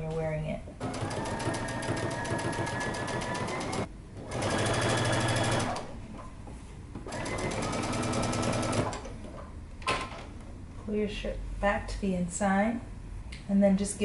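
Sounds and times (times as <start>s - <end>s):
sewing machine stitching: 0.8s - 5.9s, 7.1s - 9.2s.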